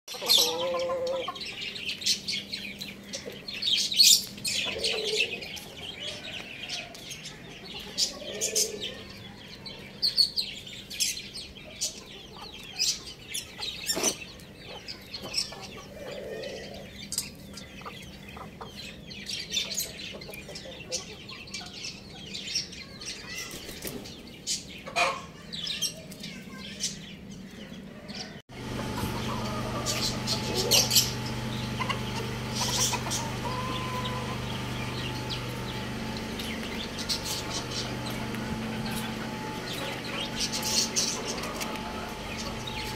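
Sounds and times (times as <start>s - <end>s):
roosters clucking softly: 0.1s - 1.7s, 3.0s - 9.4s, 13.6s - 18.8s, 27.9s - 42.9s
high bird chirps: 28.8s - 42.9s.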